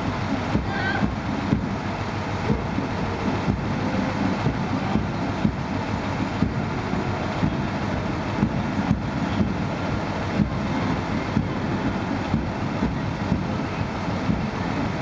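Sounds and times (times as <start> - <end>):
shuffling rumble: 0.0 - 15.0
marching boots stamping: 11.4 - 15.0.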